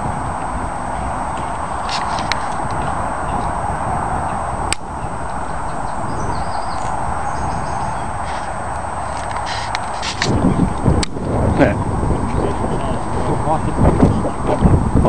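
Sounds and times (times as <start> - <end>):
choppy water: 0.0 - 15.0
wind buffeting microphone: 0.0 - 15.0
sharp click: 1.9 - 2.8, 4.7 - 5.4.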